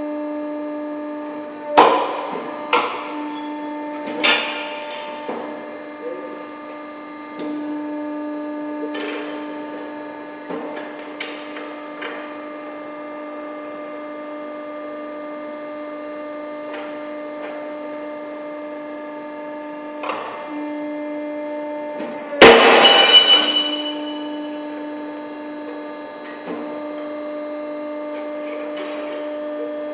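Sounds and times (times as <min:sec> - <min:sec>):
machine motor humming: 0:00.0 - 0:29.9
loud bang with metallic ringing: 0:22.4 - 0:24.2.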